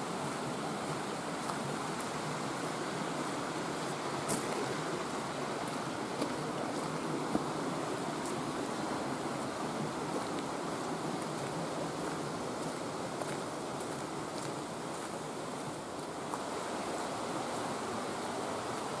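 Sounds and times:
creek running over rocks: 0.0 - 19.0.

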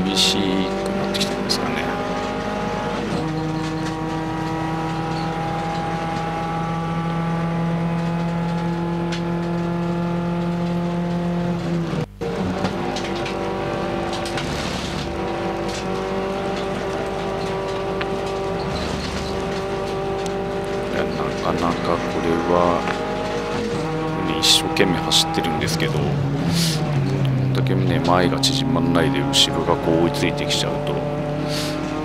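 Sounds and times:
race car engine under load: 0.0 - 32.0.

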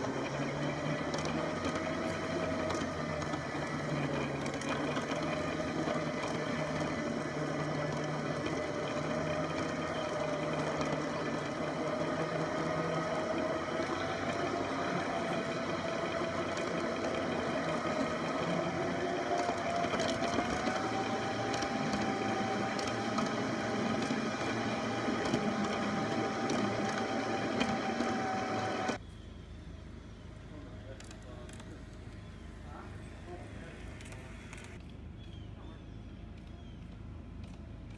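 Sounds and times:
model streetcar motor whine: 0.0 - 34.8.

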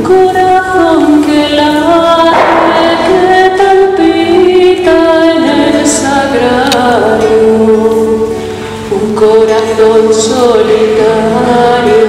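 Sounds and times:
acoustic guitar: 0.0 - 12.0
woman singing a hymn: 0.0 - 12.0.

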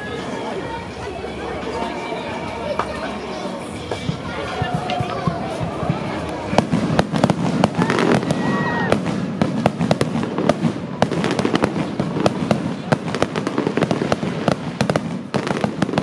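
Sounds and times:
fireworks cracking and popping: 3.9 - 16.0.

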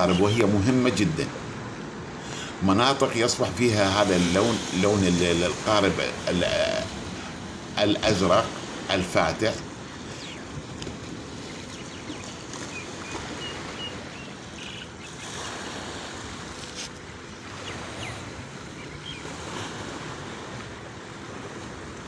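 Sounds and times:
sea waves washing onto shore: 0.0 - 22.0
faint bird chirps: 10.0 - 10.5, 11.4 - 15.6.

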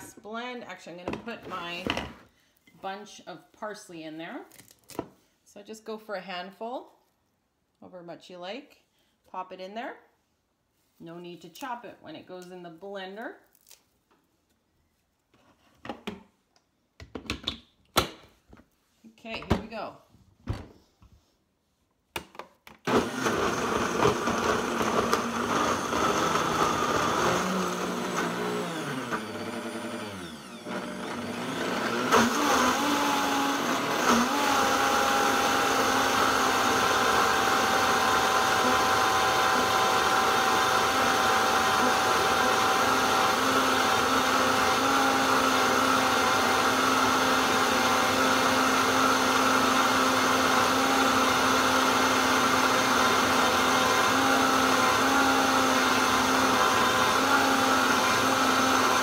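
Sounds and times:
blender running: 22.9 - 59.0.

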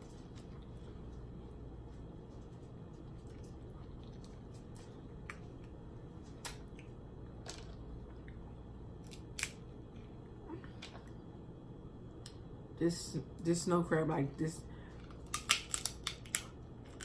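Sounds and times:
steady low background noise: 0.0 - 17.0
crab shell cracking: 9.0 - 9.7, 15.1 - 17.0.

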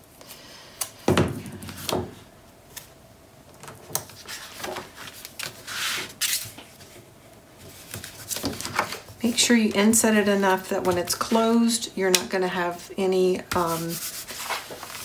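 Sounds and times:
cardstock rustling on mat: 13.5 - 15.0.

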